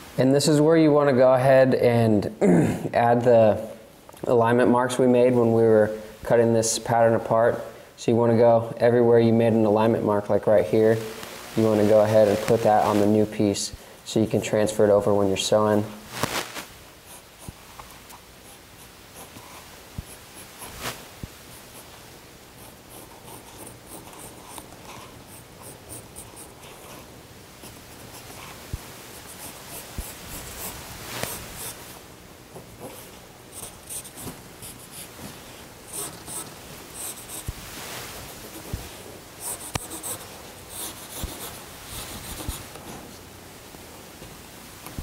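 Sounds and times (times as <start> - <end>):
pencil scratching on fabric: 22.6 - 28.6, 39.4 - 42.6.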